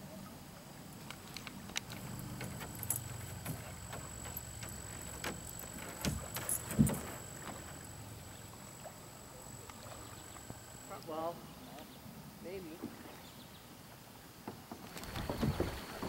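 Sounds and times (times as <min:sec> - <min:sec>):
dull knocks: 0:02.0 - 0:07.8, 0:14.5 - 0:16.0.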